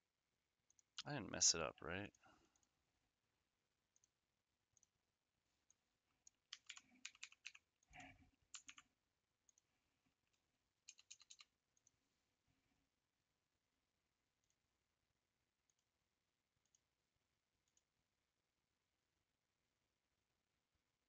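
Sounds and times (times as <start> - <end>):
mouse clicks: 5.7 - 7.6
keyboard typing: 5.7 - 9.7, 10.3 - 12.0.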